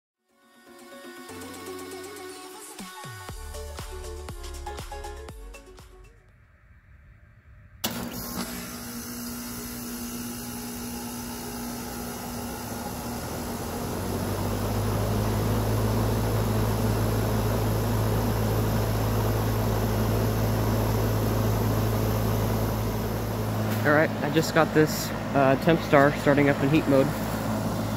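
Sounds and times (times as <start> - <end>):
heat pump compressor and fan hum: 7.8 - 27.9.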